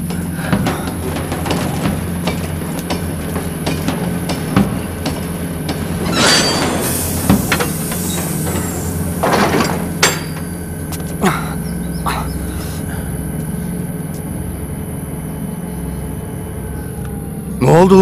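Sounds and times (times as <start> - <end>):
metallic clanks and knocks: 0.0 - 10.7.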